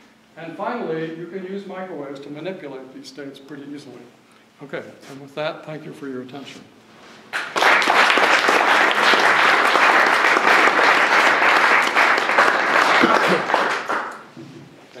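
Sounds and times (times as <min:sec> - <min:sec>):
audience applauding: 0:07.3 - 0:14.3.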